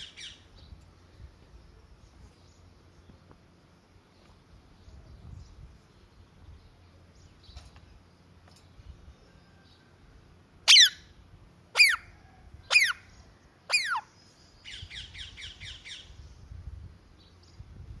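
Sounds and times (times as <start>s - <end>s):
parakeet screeching: 10.7s - 11.0s, 11.8s - 12.1s, 12.7s - 13.0s, 13.7s - 14.0s.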